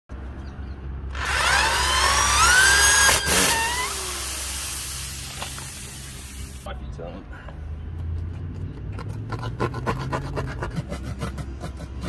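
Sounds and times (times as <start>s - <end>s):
electric drill whining: 1.1s - 6.6s
steady hiss: 4.2s - 6.7s.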